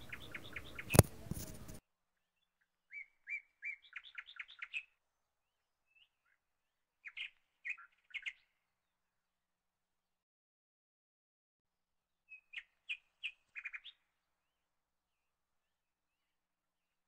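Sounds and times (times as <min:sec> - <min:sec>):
bird chirping: 0:00.0 - 0:05.0, 0:05.8 - 0:08.6, 0:12.3 - 0:14.1.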